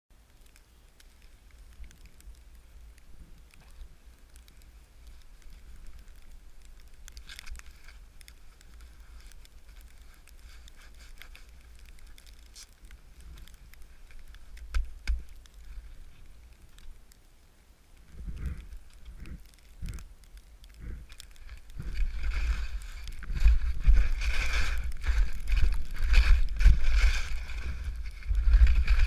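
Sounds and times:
twigs brushing and crackling: 0.1 - 29.0
low rumble: 18.0 - 29.0
skis sliding through powder: 20.8 - 29.0.

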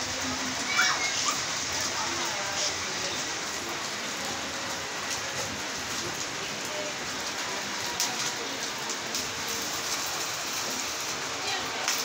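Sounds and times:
falling rain: 0.0 - 12.0.

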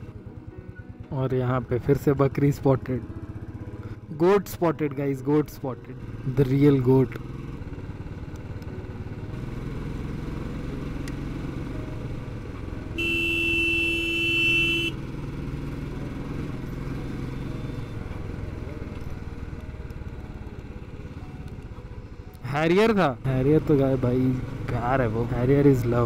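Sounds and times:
motorcycle engine running: 0.0 - 26.0
vehicle horn: 12.9 - 15.3.

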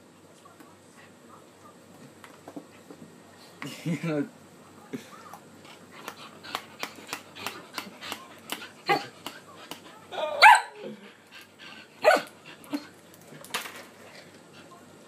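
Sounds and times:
dog barking and yipping: 10.4 - 10.8, 12.0 - 12.3.

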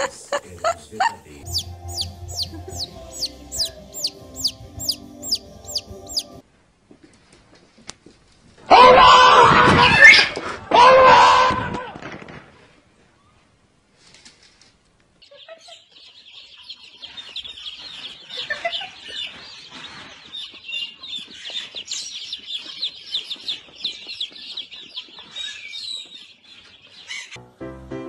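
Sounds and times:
baby chicks peeping: 0.4 - 6.4, 15.2 - 27.4.

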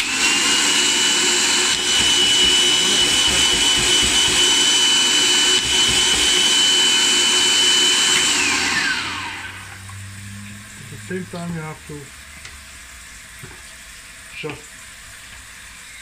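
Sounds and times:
food processor chopping paste: 0.0 - 9.5
food processor motor whining: 0.0 - 10.6.

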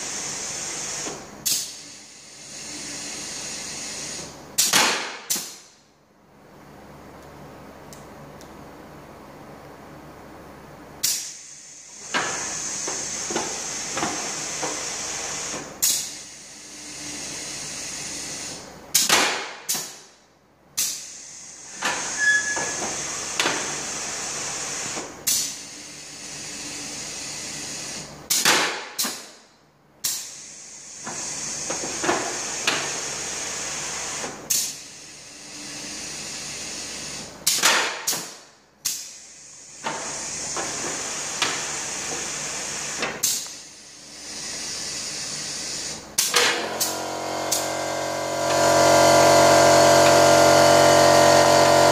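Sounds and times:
pneumatic cylinders clacking: 0.2 - 5.7, 11.0 - 20.0, 20.8 - 24.0, 24.8 - 29.4, 30.0 - 51.9
compressed air hissing: 38.8 - 48.0.

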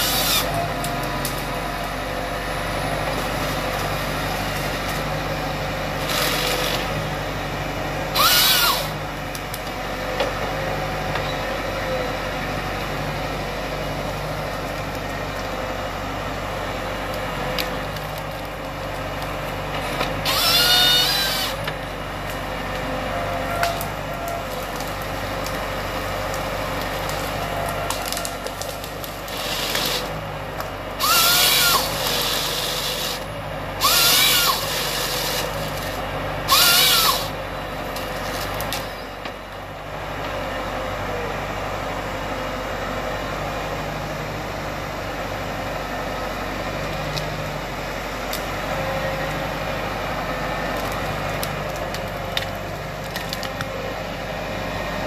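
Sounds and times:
tractor engine and hydraulics: 0.0 - 55.0
chain saw crosscuts: 8.2 - 9.0, 20.2 - 21.6, 29.3 - 30.1, 31.0 - 35.9, 36.5 - 37.3.

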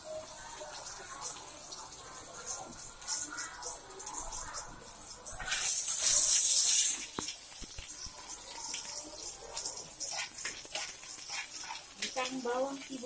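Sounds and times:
onion sizzling in hot oil: 0.0 - 13.0
metal spoon stirring: 8.8 - 12.4.

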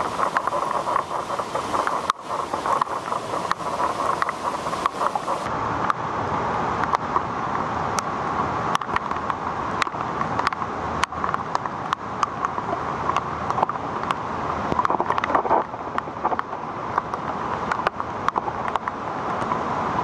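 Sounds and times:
floodwater rushing: 0.0 - 5.5.

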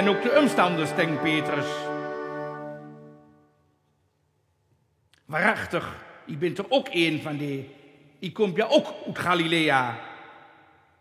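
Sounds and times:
wind band holding a chord: 0.0 - 3.6.

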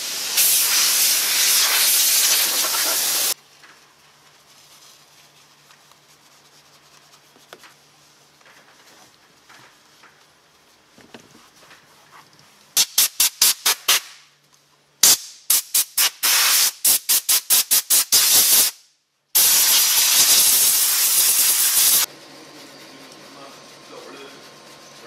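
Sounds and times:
short sharp spray hisses: 0.0 - 3.4, 12.8 - 14.2, 15.0 - 18.8, 19.4 - 22.1
steady spray hiss: 0.0 - 8.3, 12.7 - 14.2, 15.0 - 18.8, 19.4 - 24.4.

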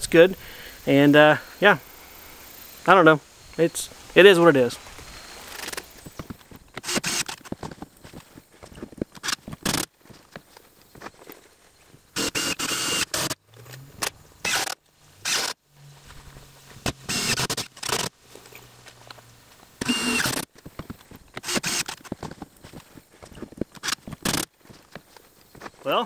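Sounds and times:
impact driver bursts: 6.8 - 7.6, 9.2 - 9.9, 12.2 - 13.4, 14.0 - 15.6, 16.8 - 18.1, 19.8 - 20.5, 21.4 - 22.2, 23.8 - 24.5.

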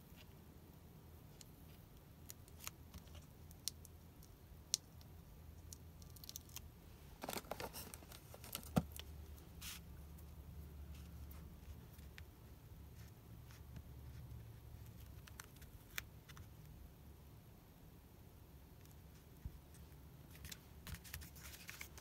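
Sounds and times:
crackly paper rustling: 7.2 - 9.8, 18.9 - 22.0.

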